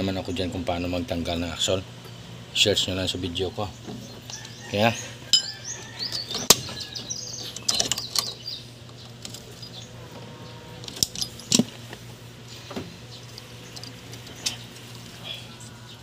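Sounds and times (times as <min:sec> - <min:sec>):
metal tools clicking on springs: 0:05.3 - 0:06.6, 0:07.4 - 0:08.4, 0:10.8 - 0:11.8.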